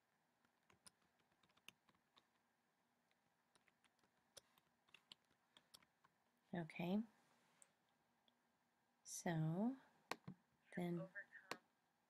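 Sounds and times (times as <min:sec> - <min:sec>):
computer keyboard keystrokes: 0:00.5 - 0:02.4.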